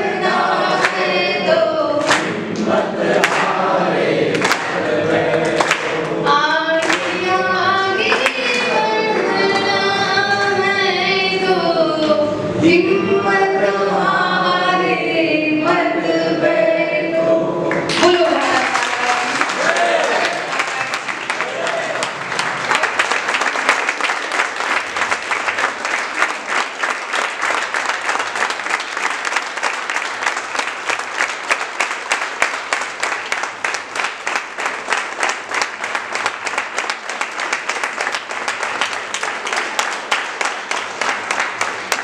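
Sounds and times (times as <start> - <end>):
audience applauding: 4.3 - 6.2, 17.7 - 42.0.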